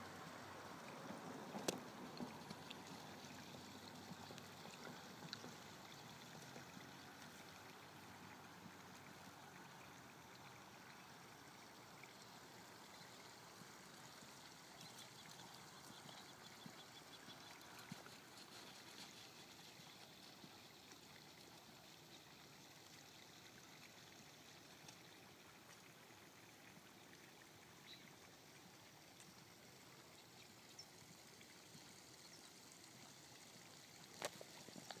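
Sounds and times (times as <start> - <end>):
faint outdoor hiss: 0.0 - 35.0
faint ticks: 12.8 - 25.9, 29.0 - 35.0.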